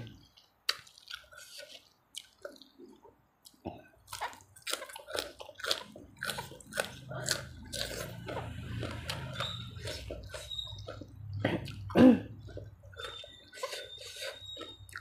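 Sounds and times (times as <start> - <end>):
wet chewing and mouth clicks: 0.0 - 15.0
crisp lettuce crunching: 4.1 - 11.0.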